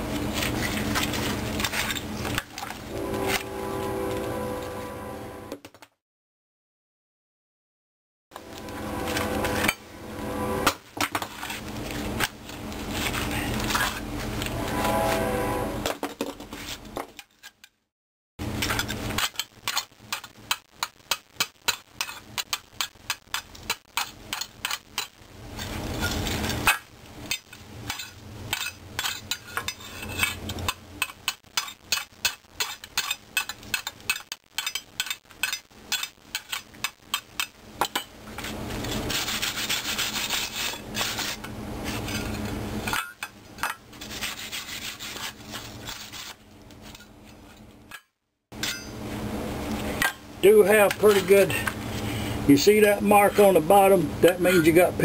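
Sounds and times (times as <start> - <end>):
hand tool scraping metal: 1.6 - 5.2, 8.4 - 11.6, 24.0 - 47.5.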